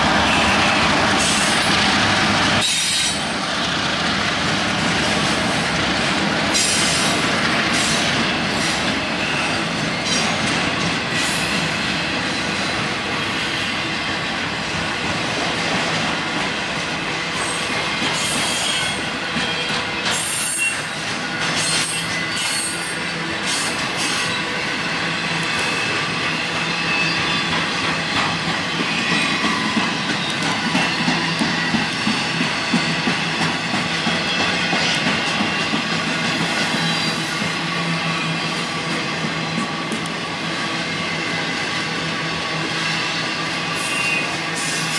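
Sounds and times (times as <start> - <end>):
train wheels rumbling on rail: 0.0 - 44.9
shrill wheel squeal: 8.6 - 10.3, 18.2 - 28.1, 43.7 - 44.9
wheels clacking over rail joints: 25.3 - 40.8.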